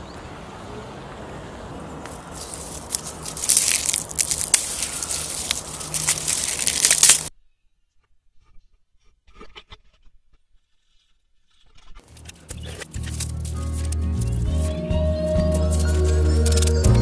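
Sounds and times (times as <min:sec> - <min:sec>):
dry leaves crackling and rustling: 0:02.0 - 0:07.3, 0:12.0 - 0:17.0
plastic packaging rustling: 0:02.1 - 0:07.3, 0:12.0 - 0:14.8, 0:15.4 - 0:16.9.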